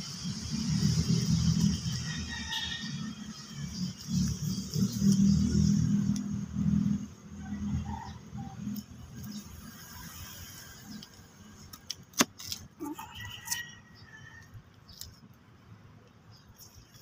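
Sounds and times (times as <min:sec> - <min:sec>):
blade scraping soil: 0:09.2 - 0:13.7.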